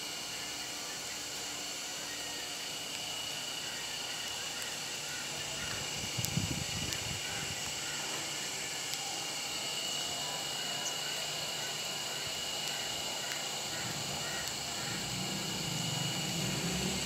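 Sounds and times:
steady rain hiss: 0.3s - 17.0s.

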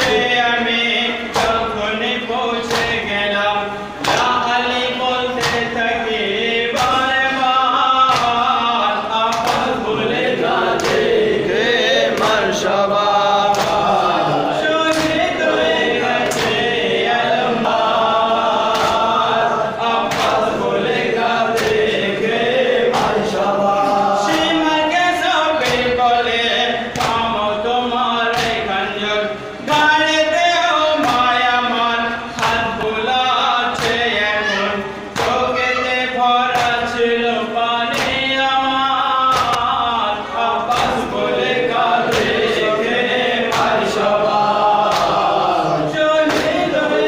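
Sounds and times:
men chanting in unison: 0.0s - 47.0s
chest-beating slaps: 5.4s - 5.7s, 8.1s - 8.5s, 9.3s - 9.8s, 10.6s - 11.2s, 13.5s - 13.9s, 14.9s - 16.7s, 18.7s - 19.0s, 25.6s - 26.0s, 26.9s - 27.3s, 35.2s - 35.5s, 43.5s - 43.9s, 44.8s - 45.3s.

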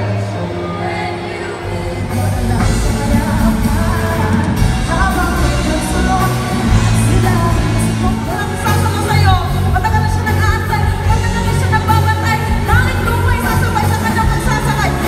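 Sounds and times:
choir singing: 0.0s - 7.1s
drums: 0.0s - 15.0s
electric guitars: 0.0s - 15.0s
lead singer singing: 0.0s - 15.0s.

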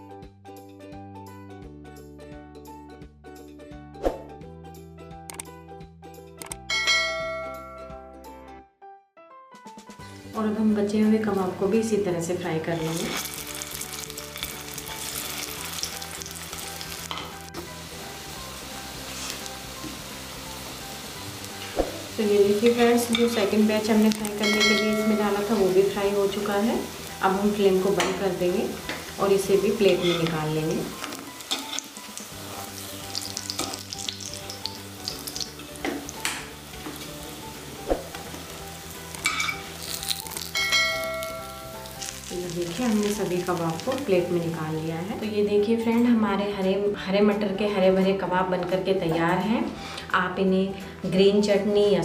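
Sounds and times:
sharp click: 5.3s - 5.5s, 6.4s - 6.6s
patties frying in hot oil: 12.8s - 37.5s, 38.2s - 44.2s
spoon and spatula scraping pan: 29.8s - 30.3s.

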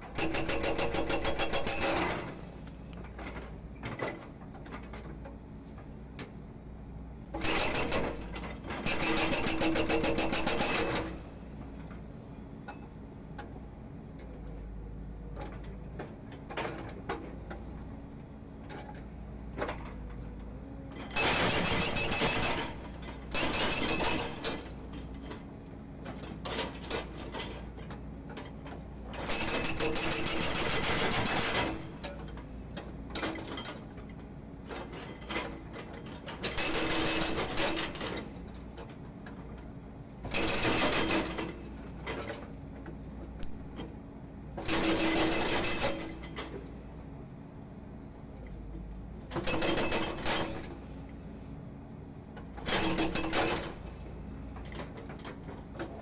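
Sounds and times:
hydraulic breaker hammering concrete: 44.6s - 46.3s.

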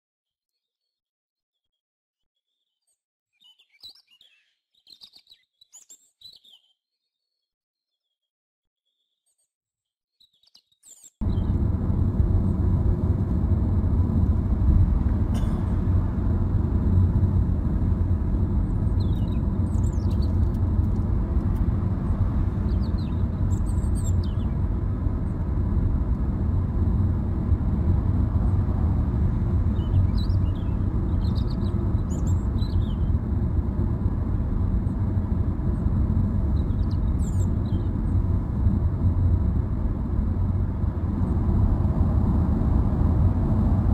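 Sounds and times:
car road and wind noise: 11.2s - 43.9s.

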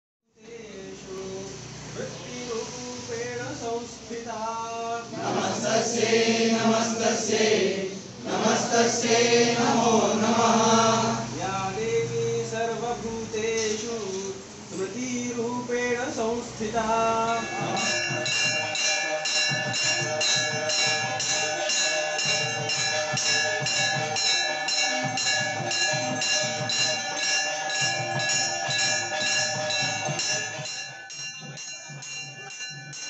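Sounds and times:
brass bell ringing rapidly: 17.2s - 33.0s.

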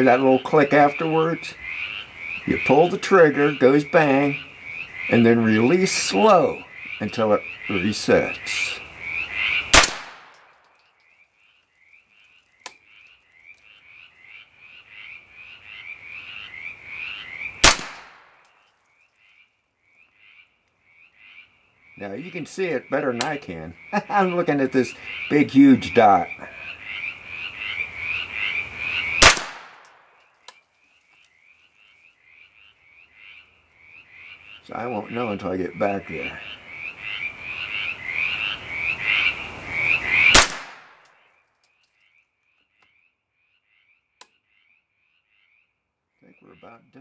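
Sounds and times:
pistol shot with echo: 9.7s - 10.5s, 17.6s - 18.4s, 29.2s - 30.1s, 40.3s - 41.0s.

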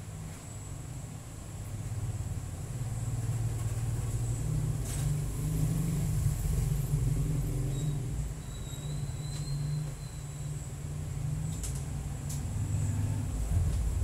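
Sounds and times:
vehicle engine rumble passing: 1.8s - 14.0s.

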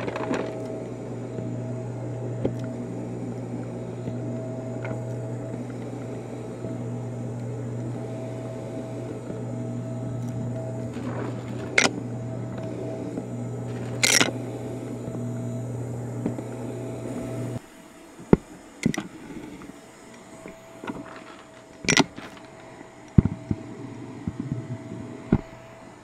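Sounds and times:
vacuum cleaner motor hum: 0.0s - 26.0s
clicks and knocks of parts: 12.6s - 14.4s, 20.4s - 23.6s.

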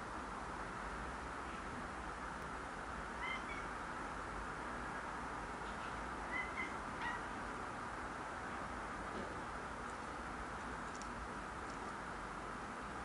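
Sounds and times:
cat chirping: 3.2s - 3.8s, 6.3s - 7.4s.

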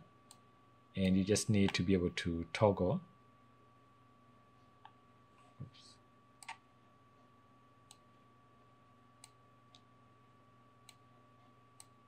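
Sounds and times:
faint steady hum: 0.0s - 12.0s
computer mouse clicks: 6.4s - 6.6s.

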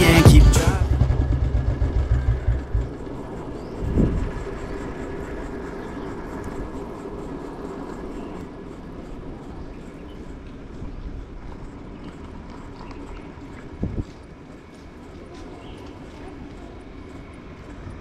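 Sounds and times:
hip-hop beat: 0.0s - 2.9s
moving vehicle noise: 0.0s - 18.0s.

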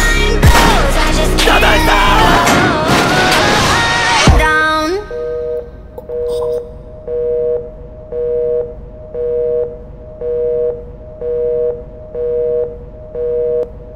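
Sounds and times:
telephone busy signal beeping: 5.1s - 13.6s.

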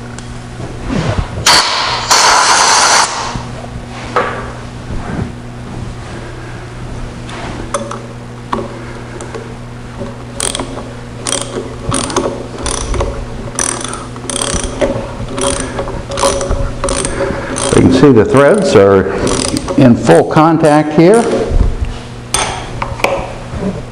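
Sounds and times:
steady low hum: 0.0s - 23.9s
ratchet wrench clicking: 10.4s - 17.9s, 18.5s - 19.8s.

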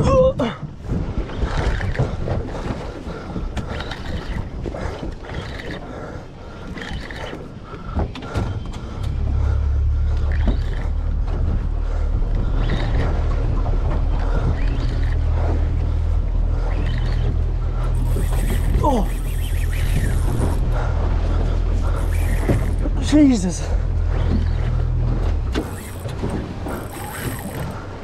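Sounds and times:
wind and water noise: 0.0s - 28.0s
boat engine droning: 0.7s - 28.0s.

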